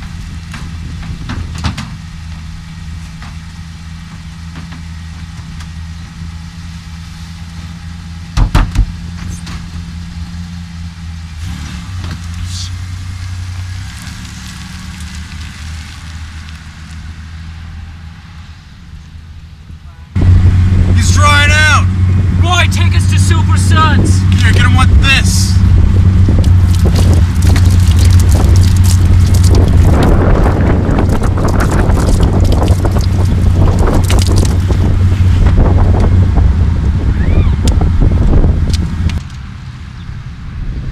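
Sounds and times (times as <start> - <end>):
loud knocks: 8.4 - 9.0.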